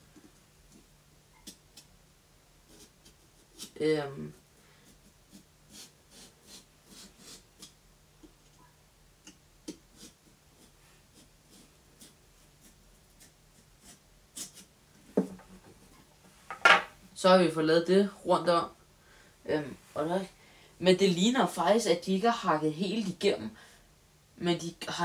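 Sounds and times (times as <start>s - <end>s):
knife sawing through pumpkin rind: 4.8s - 7.7s, 9.9s - 14.7s.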